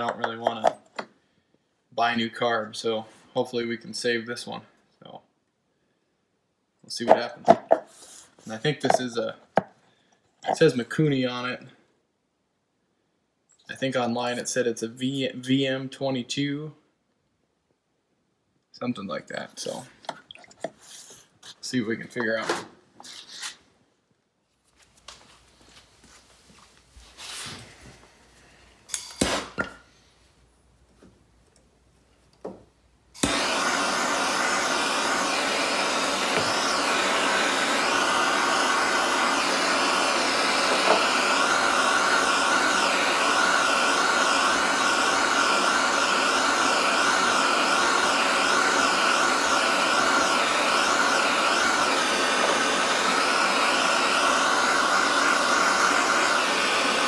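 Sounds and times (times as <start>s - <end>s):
blow torch flame hissing: 29.2s - 29.6s, 33.1s - 57.0s.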